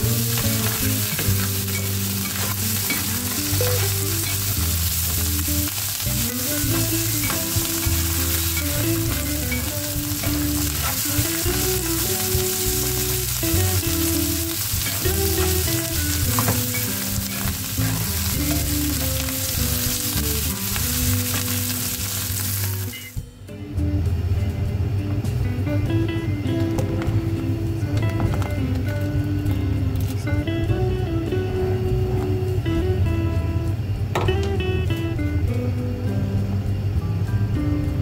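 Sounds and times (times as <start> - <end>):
food sizzling in hot oil: 0.0 - 23.2
background music: 0.0 - 38.0
spatula scraping a pan: 0.2 - 23.2.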